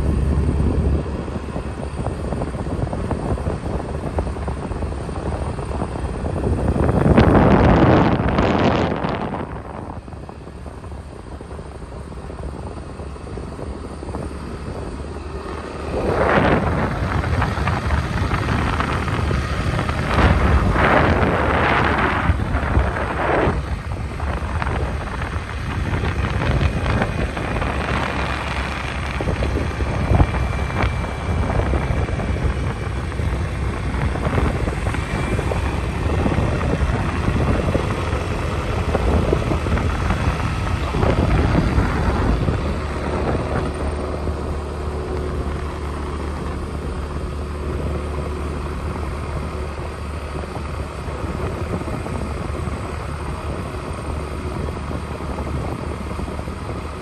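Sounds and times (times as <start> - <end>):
car tyres and engine rumble: 0.0 - 57.0
wind noise on microphone: 0.0 - 57.0.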